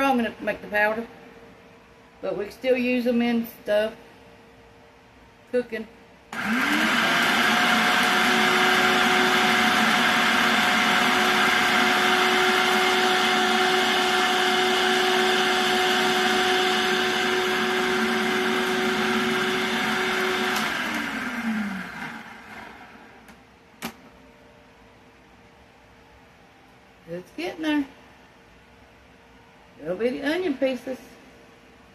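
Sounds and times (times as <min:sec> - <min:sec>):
food processor grinding: 0:06.3 - 0:23.2.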